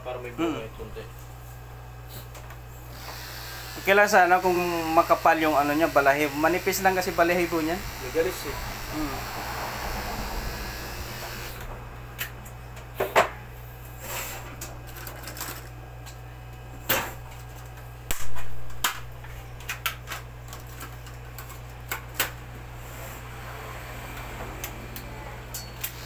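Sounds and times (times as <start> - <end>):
low hum: 7.5 - 13.9.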